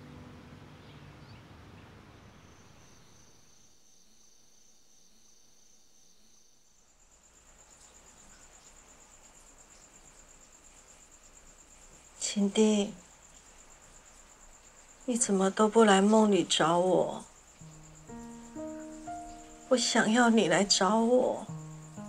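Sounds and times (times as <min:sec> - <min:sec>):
higher insect trill: 0:02.2 - 0:22.0
night insects trilling: 0:02.2 - 0:22.0
soft background music: 0:17.0 - 0:22.0.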